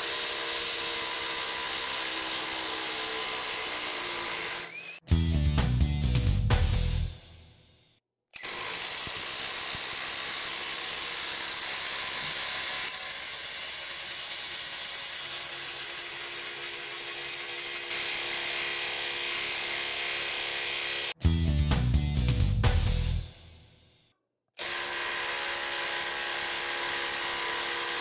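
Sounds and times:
impact driver hammering: 0:08.4 - 0:13.0.

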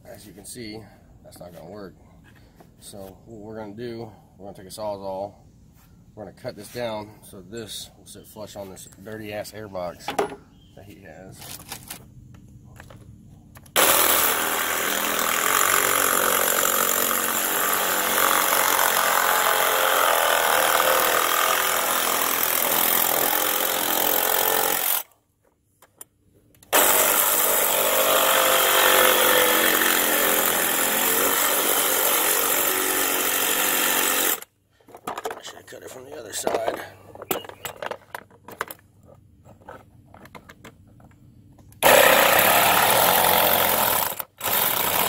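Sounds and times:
reciprocating saw cutting plastic: 0:13.8 - 0:25.1, 0:26.7 - 0:34.5, 0:41.8 - 0:45.0.

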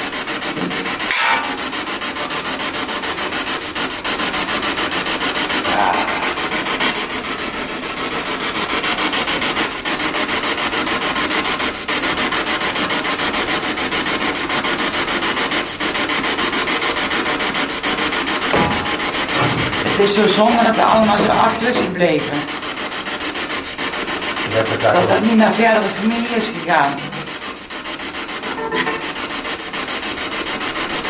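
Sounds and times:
pulsing radio static: 0:05.6 - 0:07.0, 0:18.6 - 0:22.5, 0:24.4 - 0:27.1.

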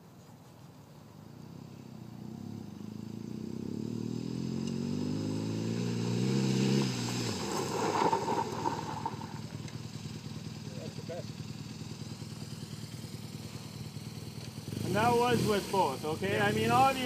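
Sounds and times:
motorcycle engine approaching: 0:00.0 - 0:17.0
tyres skidding on loose dirt: 0:05.8 - 0:10.9.

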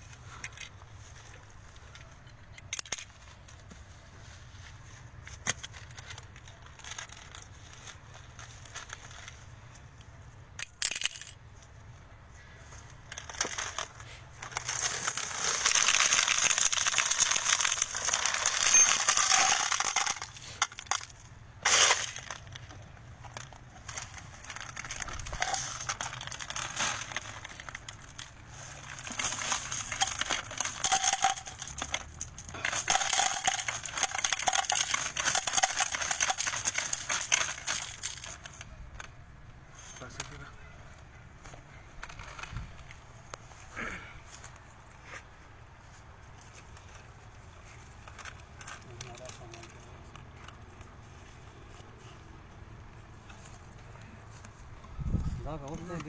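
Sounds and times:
brass cartridges clinking: 0:13.1 - 0:38.7.

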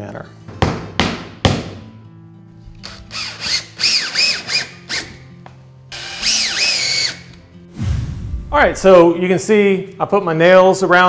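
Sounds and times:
cordless drill driving screws: 0:02.8 - 0:05.2, 0:05.9 - 0:07.4.

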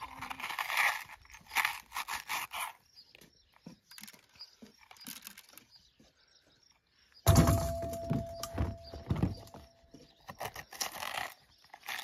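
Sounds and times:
corer crunching into a pepper: 0:00.0 - 0:02.9, 0:10.2 - 0:12.0.

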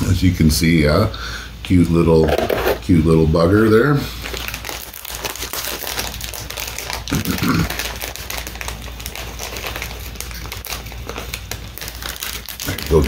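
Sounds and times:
cookie packet crinkling: 0:02.3 - 0:13.0.

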